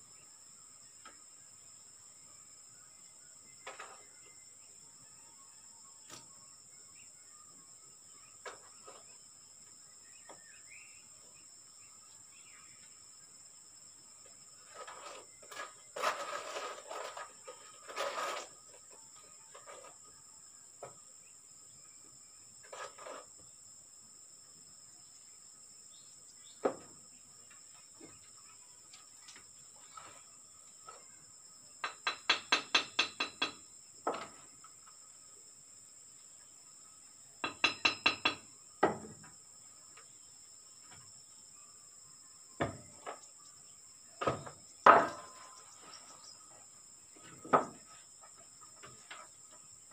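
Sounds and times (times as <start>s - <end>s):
bird chirp: 0.0s - 23.6s, 24.9s - 35.4s, 36.1s - 49.9s
insect drone: 0.0s - 49.9s.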